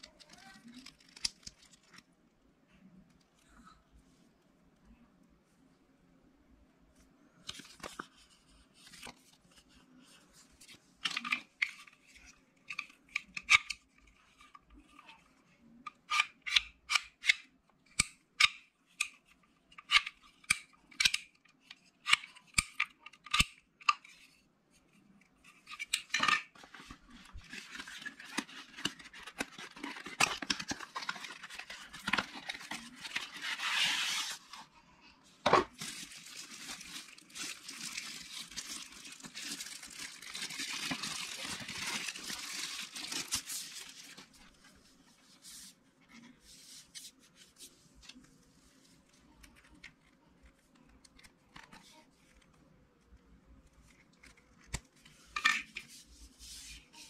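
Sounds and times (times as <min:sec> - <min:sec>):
packaging rustling and crinkling: 0:26.6 - 0:34.7, 0:35.6 - 0:44.8.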